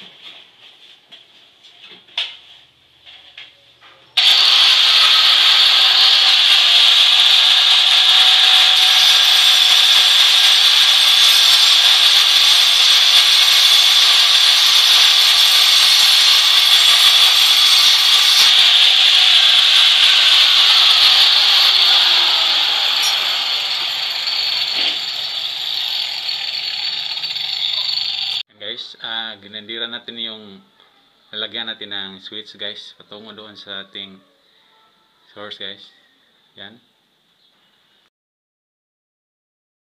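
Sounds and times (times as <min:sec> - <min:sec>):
angle grinder cutting concrete: 0:04.2 - 0:28.4.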